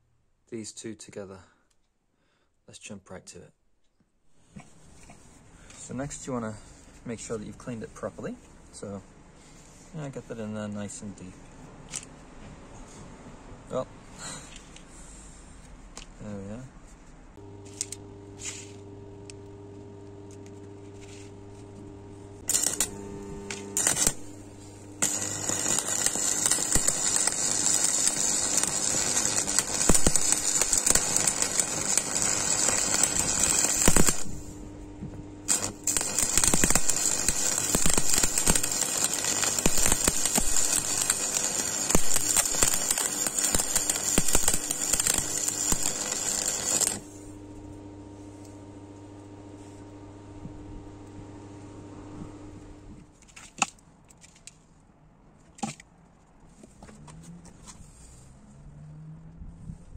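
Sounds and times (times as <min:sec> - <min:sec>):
crackling welding arc: 0:20.2 - 0:34.7, 0:35.4 - 0:47.4.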